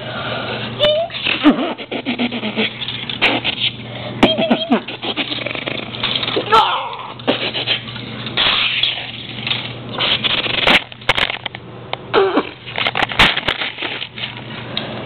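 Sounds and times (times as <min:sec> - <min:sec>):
plastic toys clattering: 0:05.8 - 0:06.5, 0:08.2 - 0:11.6, 0:12.7 - 0:14.4
child making mouth sound effects: 0:12.1 - 0:12.6.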